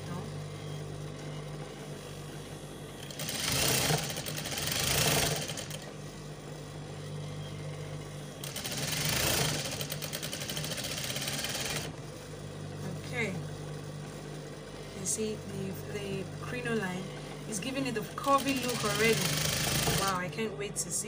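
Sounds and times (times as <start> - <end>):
motor hum: 0.0 - 21.0
sewing machine stitching: 3.0 - 6.0, 8.4 - 12.1, 17.6 - 20.4.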